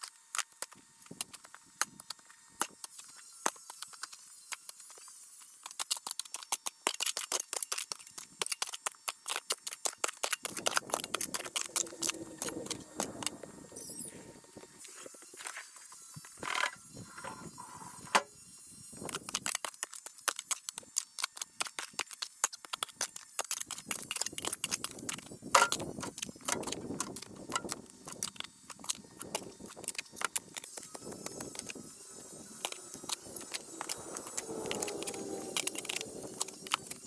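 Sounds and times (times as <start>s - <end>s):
digging tool scraping soil: 10.4s - 18.3s.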